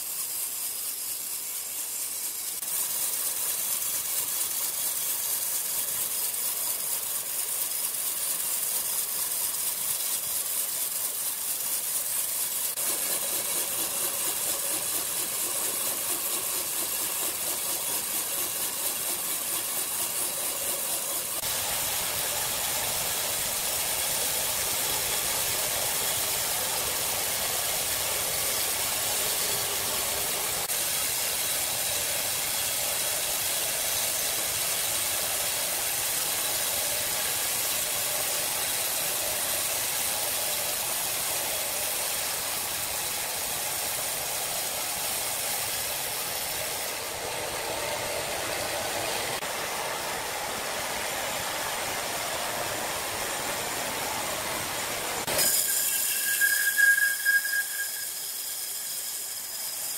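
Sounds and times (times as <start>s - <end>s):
saw blade rasping through wood: 0.0s - 35.5s, 55.2s - 59.9s
sawmill machine hum: 0.0s - 59.9s.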